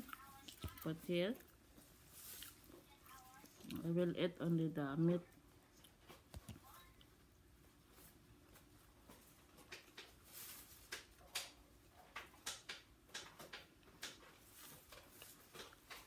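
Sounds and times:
chewing fried chicken: 0.0s - 4.0s, 5.2s - 7.2s.

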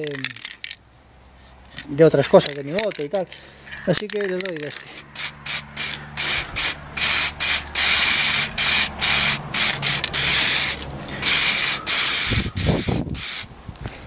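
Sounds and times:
spray paint can hissing: 4.7s - 13.5s.

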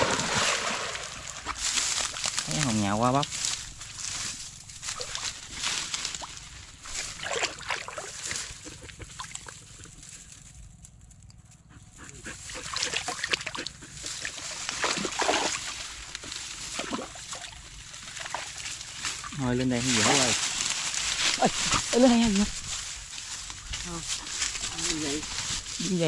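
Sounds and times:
dogs splashing through water: 0.0s - 2.6s, 4.8s - 9.9s, 12.2s - 23.0s.

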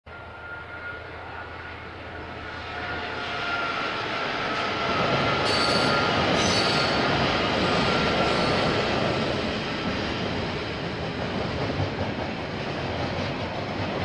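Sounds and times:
wheel squeal on rails: 0.1s - 9.3s
train approaching: 0.1s - 14.0s.

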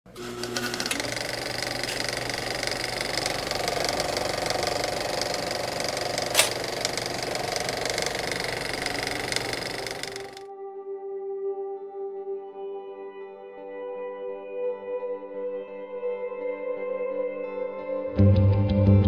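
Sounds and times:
film projector clattering: 0.1s - 10.4s
sharp click: 6.2s - 7.3s.

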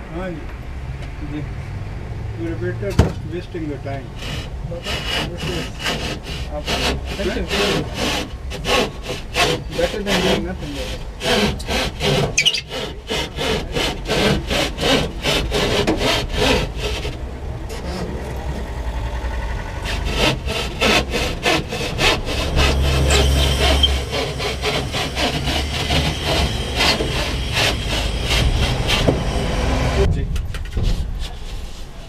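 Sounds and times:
hand saw cutting wood: 4.1s - 18.2s, 19.8s - 30.1s
low rumble: 16.7s - 30.6s.

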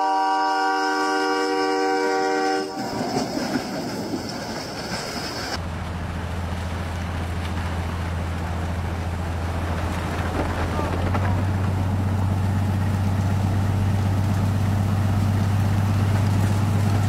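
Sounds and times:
locomotive horn: 0.0s - 3.0s
snowplow rushing through snow: 2.6s - 17.0s.

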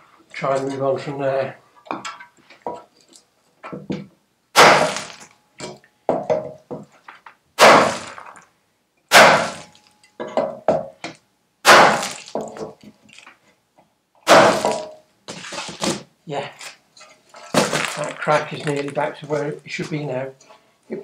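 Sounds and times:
hammer striking steel: 4.6s - 5.8s, 9.1s - 10.6s, 11.7s - 12.3s.

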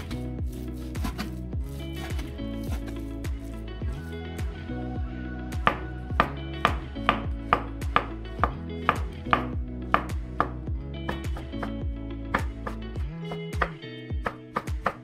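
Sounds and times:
knife slicing on wooden board: 0.0s - 3.1s.

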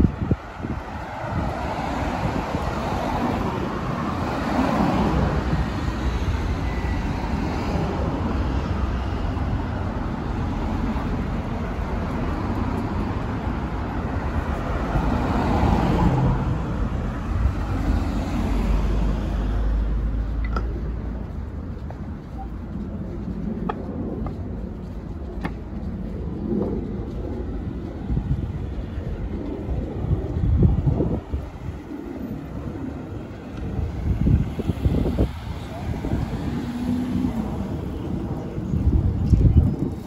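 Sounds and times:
cars passing: 0.0s - 40.0s
steady low traffic rumble: 0.0s - 40.0s.

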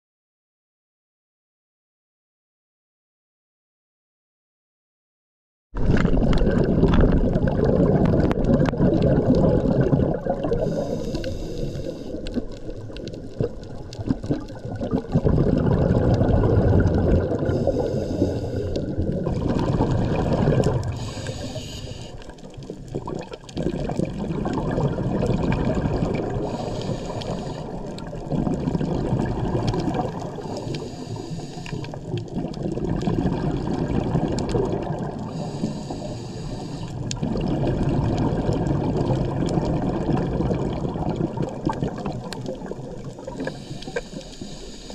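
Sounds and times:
underwater rushing wash: 5.8s - 44.9s
faint hissing: 10.4s - 13.2s, 17.4s - 19.1s, 20.7s - 22.6s, 26.2s - 28.1s, 30.2s - 32.2s, 35.2s - 37.2s, 42.4s - 44.9s.

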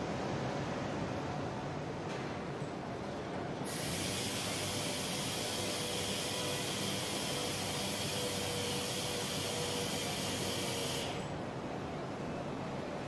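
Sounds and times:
air polisher hissing and whining: 3.7s - 11.2s.

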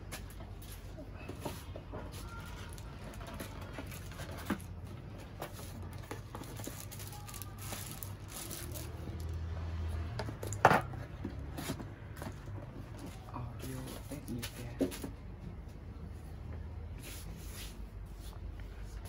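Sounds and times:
plastic and cardboard rustling: 0.0s - 9.5s.

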